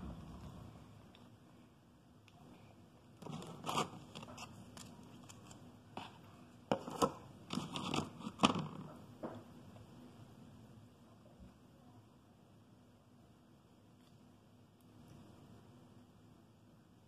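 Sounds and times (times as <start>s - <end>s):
plastic icing bag rustling: 3.2s - 8.8s.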